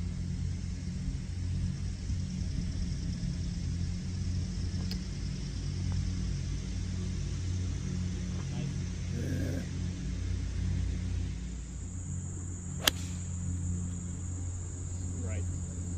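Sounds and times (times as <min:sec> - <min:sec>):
low outdoor rumble: 0:00.0 - 0:15.9
faint sharp click: 0:12.8 - 0:13.2.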